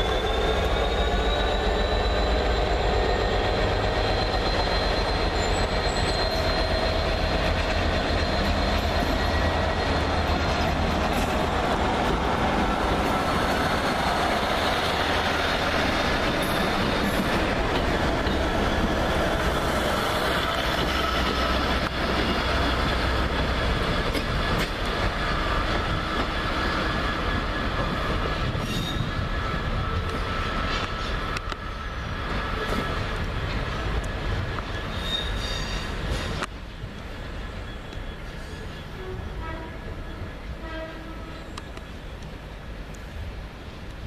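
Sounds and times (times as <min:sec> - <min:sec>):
thin squealing tones: 0:00.0 - 0:21.6, 0:34.7 - 0:36.4
diesel locomotive engine rumble: 0:00.0 - 0:44.0.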